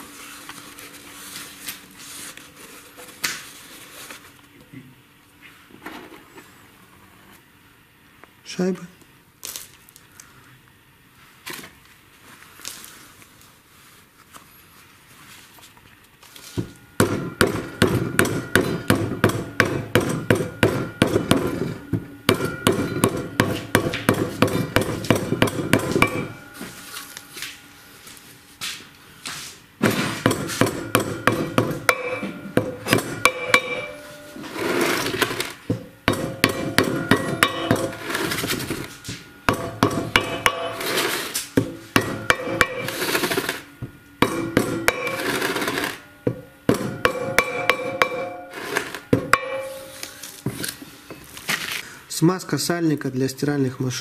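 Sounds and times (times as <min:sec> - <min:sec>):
hammer tapping metal: 0:16.6 - 0:26.8, 0:30.2 - 0:51.2.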